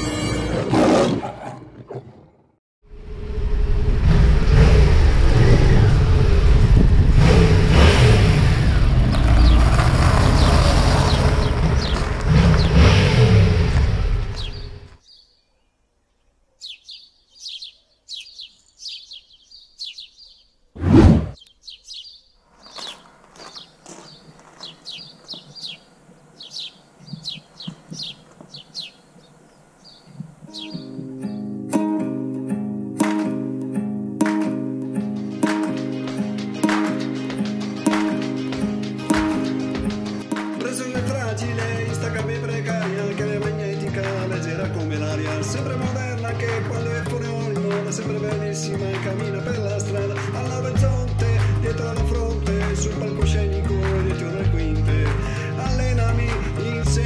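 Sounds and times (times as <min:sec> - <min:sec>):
motorcycle engine revving: 0:03.0 - 0:14.9
small birds chirping: 0:10.3 - 0:12.9, 0:14.2 - 0:20.7, 0:21.3 - 0:31.6.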